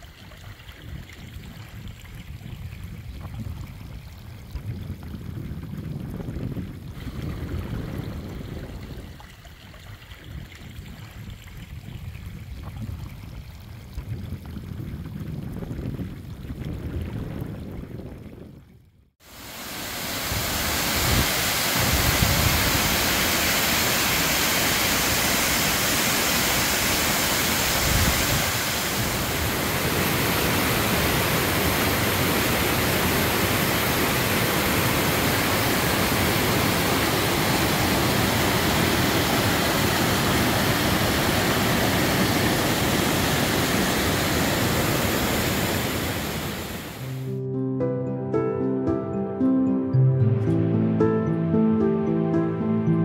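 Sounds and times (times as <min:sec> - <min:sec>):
wind buffeting microphone: 0:00.4 - 0:18.9, 0:20.2 - 0:47.1
waterfall rushing: 0:19.2 - 0:47.3.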